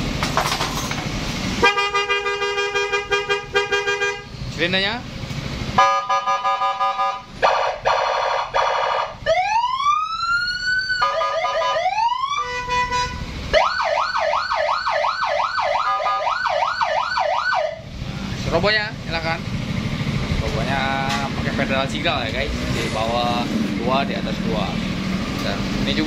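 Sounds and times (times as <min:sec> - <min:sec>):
electronic siren cycling tones: 0:09.2 - 0:17.8.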